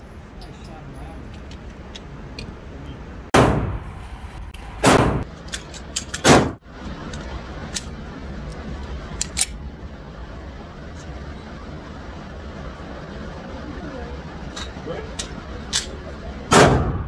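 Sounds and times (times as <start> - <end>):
low background noise: 0.0 - 17.0
pistol shots with echo: 3.4 - 3.8, 4.8 - 5.2, 6.2 - 6.6, 16.5 - 17.0.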